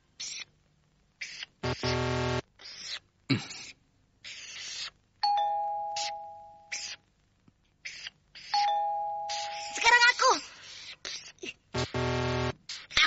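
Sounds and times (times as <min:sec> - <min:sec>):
brief buzz: 0:01.6 - 0:02.4, 0:11.8 - 0:12.6
two-note bell chime: 0:05.3 - 0:06.7, 0:08.6 - 0:09.7.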